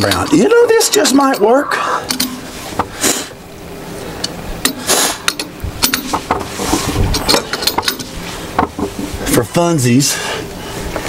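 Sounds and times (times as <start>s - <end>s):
metal tools clinking: 0.0s - 2.4s, 7.1s - 8.2s
short rustles: 6.0s - 9.4s.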